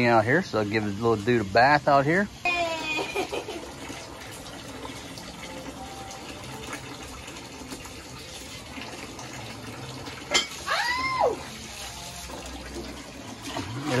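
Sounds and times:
hose water trickling into tub: 0.0 - 14.0
high voice sound: 2.5 - 3.2.

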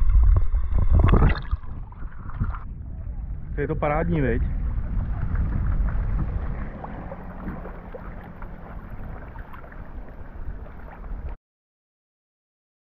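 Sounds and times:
water splashing and lapping: 0.0 - 3.3, 4.4 - 11.4
wind buffeting microphone: 0.0 - 11.4.

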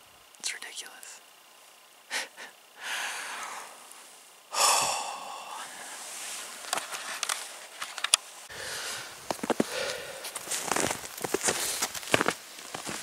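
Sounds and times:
man breathing out heavily: 2.1 - 3.8, 4.5 - 6.1, 8.5 - 10.6
rustling: 5.8 - 13.0.

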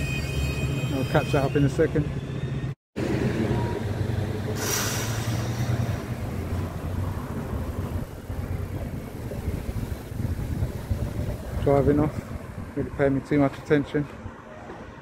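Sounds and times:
brief hiss: 4.6 - 5.8.

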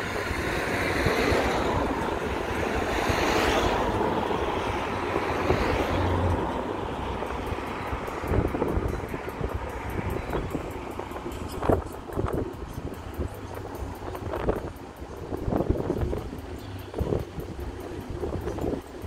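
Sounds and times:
train passing: 0.0 - 19.0.

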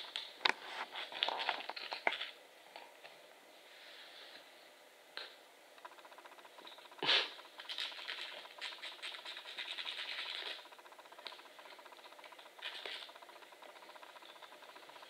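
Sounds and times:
nail file rasping on claws: 7.0 - 10.7.

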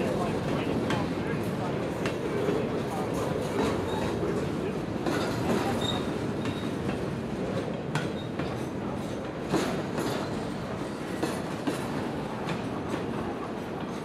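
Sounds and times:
steel wheels rumbling on rail: 0.0 - 14.0
wheels clacking over rail joints: 0.0 - 14.0.

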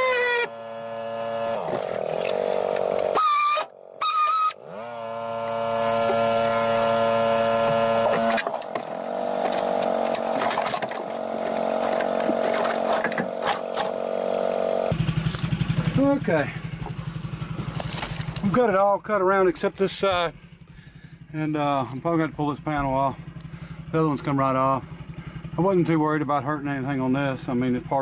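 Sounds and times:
air-powered glass cutter whining: 0.0 - 15.0.

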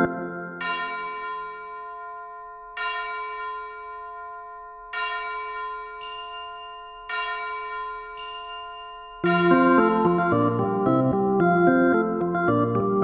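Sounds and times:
bell-like chord ringing: 0.0 - 12.8
high shimmer: 8.2 - 10.5.

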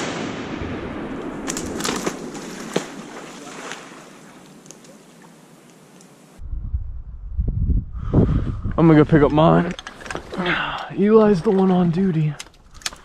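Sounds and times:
water splashing and sloshing: 0.9 - 6.4, 9.3 - 13.0
sharp clicks: 12.4 - 13.0.

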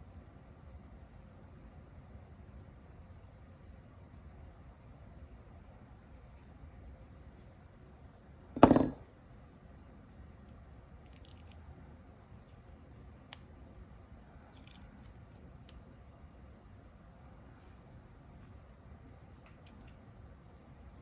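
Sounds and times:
metal tool clattering on desk: 8.6 - 9.1
small clicks and rustles: 11.0 - 11.6, 14.3 - 15.8, 17.6 - 20.1.

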